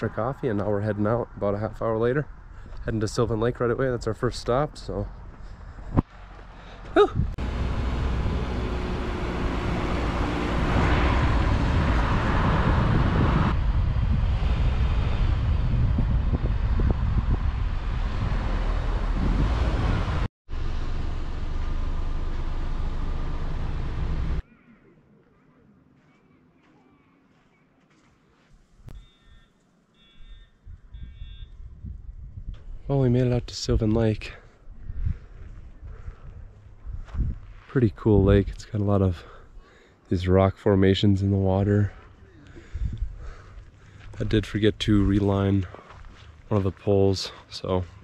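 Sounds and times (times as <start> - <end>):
road and wind noise: 0.0 - 24.4, 28.5 - 48.0
heavy low rumble: 7.0 - 24.4.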